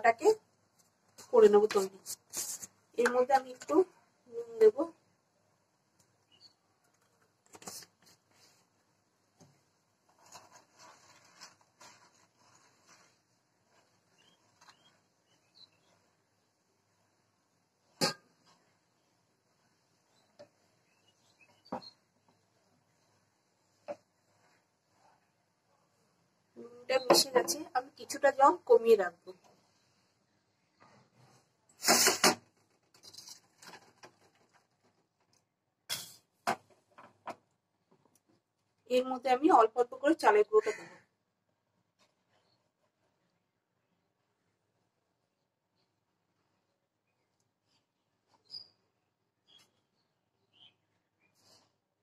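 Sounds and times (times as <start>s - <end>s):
wooden spatula stirring in pan: 10.0s - 16.1s.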